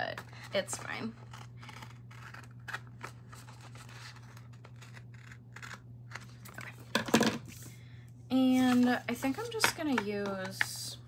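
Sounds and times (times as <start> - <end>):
scissors cutting paper: 0.0 - 6.7.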